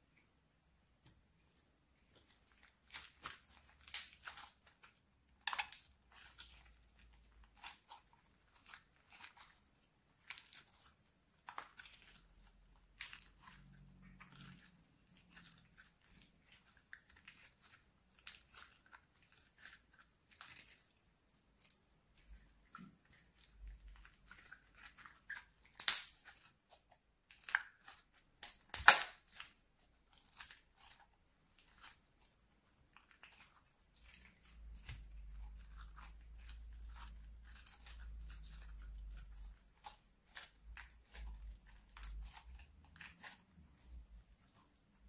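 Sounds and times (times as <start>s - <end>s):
loud sharp slime pops: 25.8s - 26.2s, 28.4s - 29.2s.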